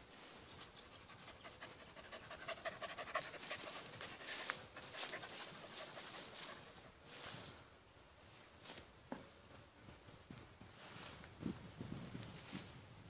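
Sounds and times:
dog panting: 0:00.9 - 0:06.8.

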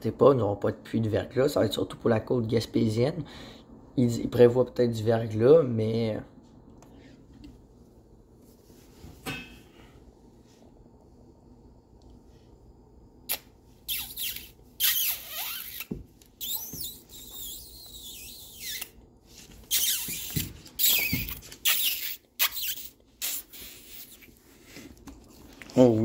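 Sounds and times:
dog whining squeakily: 0:13.9 - 0:19.0, 0:19.7 - 0:22.9.

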